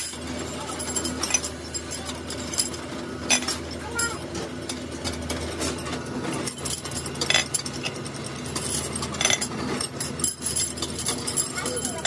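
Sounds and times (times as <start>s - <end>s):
low machine hum: 0.0s - 12.0s
metal rods clinking: 0.0s - 12.0s.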